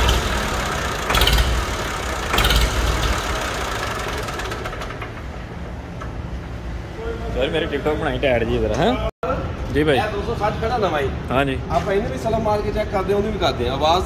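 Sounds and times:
tractor diesel engine running: 0.0s - 6.9s.

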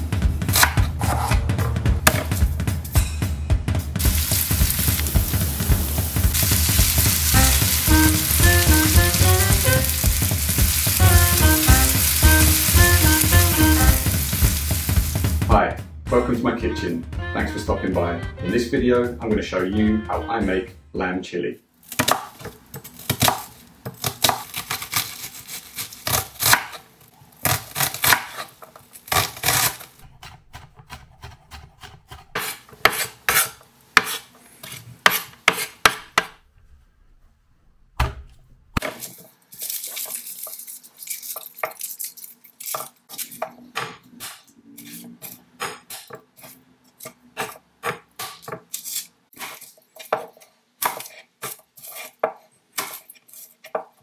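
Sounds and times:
knife chopping on wooden board: 0.5s - 1.4s, 2.0s - 2.4s, 29.1s - 36.4s.

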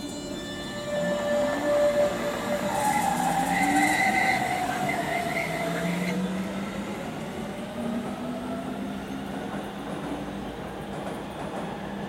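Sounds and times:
electric train motors whining: 0.0s - 8.8s
rumble of train wheels: 0.0s - 12.0s.

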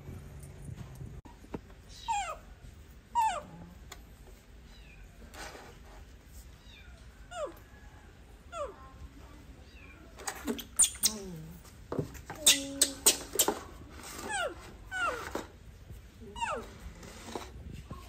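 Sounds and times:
rustling scrape: 5.2s - 6.7s, 13.1s - 18.0s.

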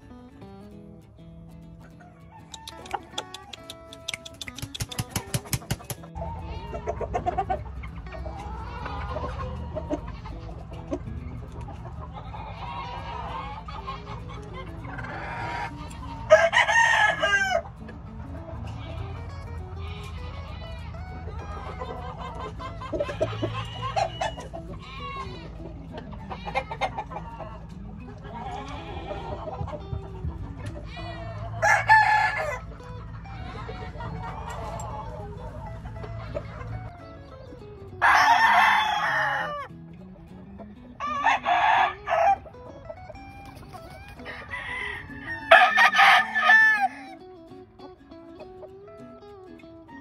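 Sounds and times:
chickens clucking: 0.0s - 50.0s
faint background music: 0.0s - 50.0s
rooster crowing: 2.0s - 4.5s, 15.0s - 17.7s, 19.8s - 25.5s, 30.8s - 37.0s, 38.0s - 39.7s, 41.0s - 42.5s, 43.2s - 47.2s.

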